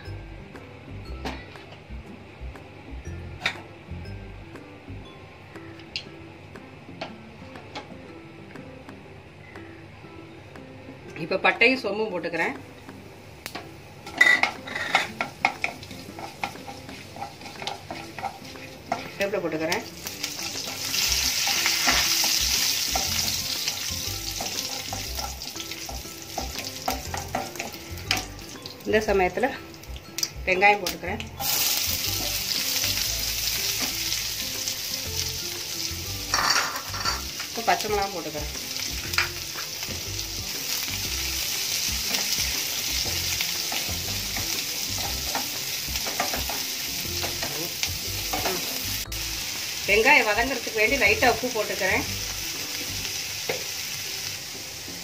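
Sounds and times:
spices sizzling in hot oil: 11.2 - 55.0.

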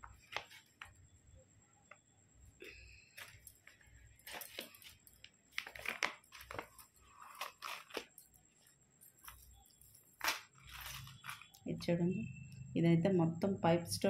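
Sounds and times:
plastic pouches crinkling: 3.2 - 11.6.

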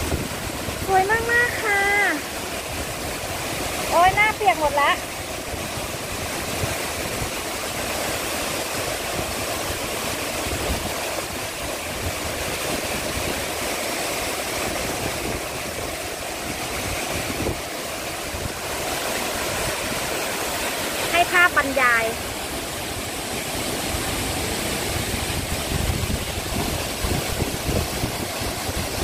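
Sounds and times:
waterfall rushing: 0.0 - 29.0.

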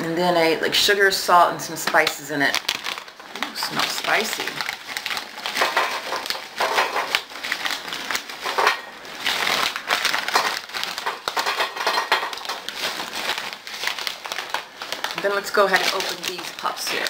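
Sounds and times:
plastic bags crinkling: 1.8 - 17.0
snacks clattering on metal pan: 5.5 - 7.3, 8.4 - 8.9, 10.2 - 13.0.

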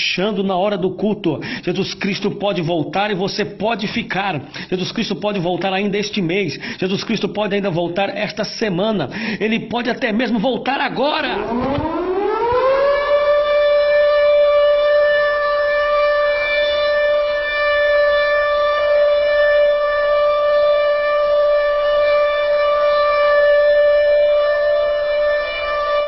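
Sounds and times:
long horn blast: 11.4 - 26.0.

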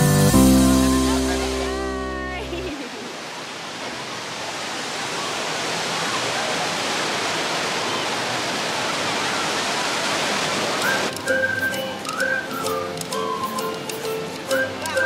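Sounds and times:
background music: 0.0 - 2.8, 10.8 - 15.0
rushing water: 0.0 - 15.0
faint voices of swimmers: 4.8 - 10.1.

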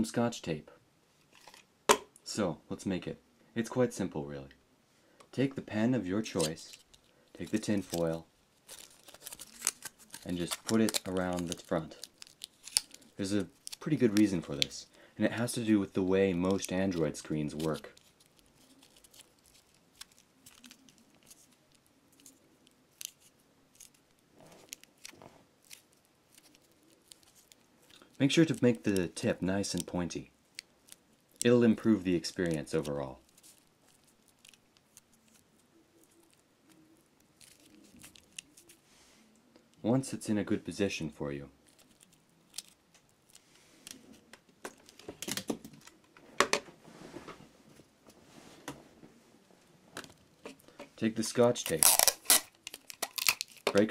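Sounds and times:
aluminium foil crinkling: 6.4 - 14.8, 16.4 - 38.8, 41.6 - 45.3, 50.4 - 53.9.

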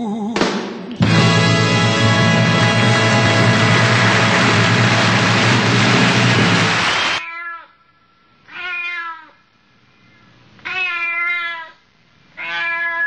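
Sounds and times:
background music: 0.9 - 7.2
cat meowing: 8.5 - 9.4, 10.6 - 11.8, 12.4 - 13.0.

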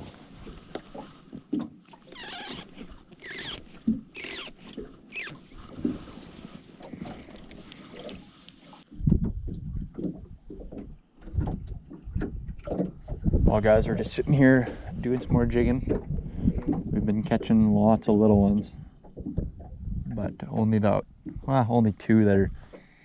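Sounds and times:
waves lapping against boat hull: 0.0 - 23.0
fishing reel clicks: 2.2 - 5.4
wind buffeting microphone: 8.9 - 20.4.

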